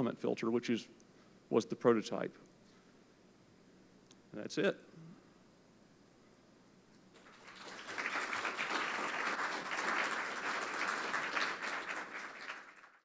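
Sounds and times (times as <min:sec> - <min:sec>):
audience applauding: 0:07.1 - 0:13.0.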